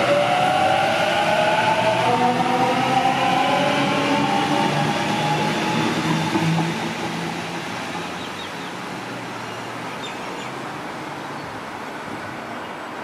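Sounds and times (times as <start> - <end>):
train traction motors whining: 0.0 - 8.6
rail rumble: 0.0 - 9.4
wheel and track noise: 0.0 - 9.8.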